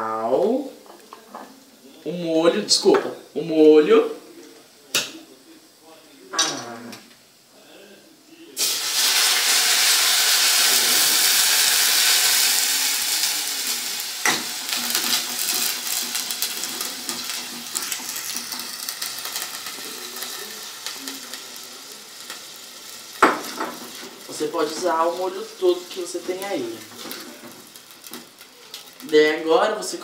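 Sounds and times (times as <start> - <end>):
sauce sizzling in hot oil: 8.5 - 30.0.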